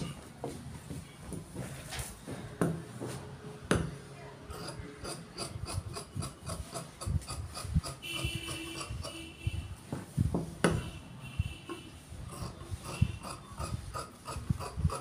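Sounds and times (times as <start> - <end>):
loud knocks: 9.9 - 10.9.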